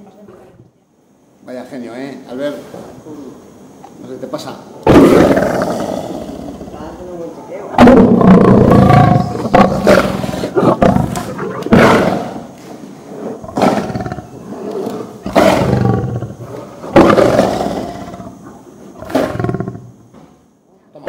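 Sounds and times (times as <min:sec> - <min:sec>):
lion roaring: 0:04.8 - 0:20.0.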